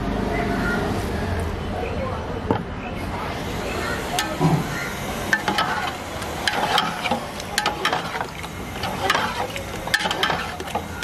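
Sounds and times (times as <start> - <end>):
metal ladle scraping pot: 5.3 - 11.0.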